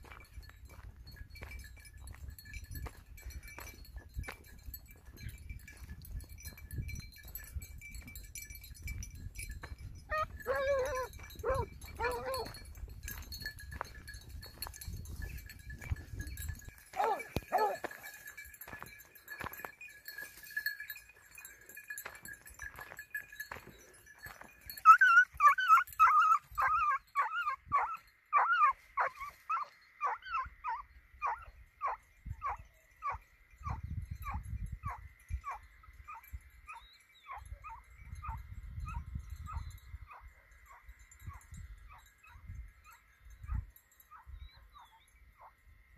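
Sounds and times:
hound yelping: 10.1s - 12.7s, 16.9s - 18.0s, 24.8s - 39.0s.

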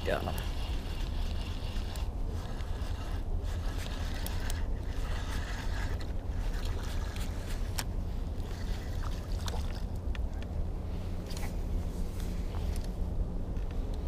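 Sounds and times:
boat engine low rumble: 0.0s - 14.0s
fishing reel clicking: 0.1s - 9.6s.

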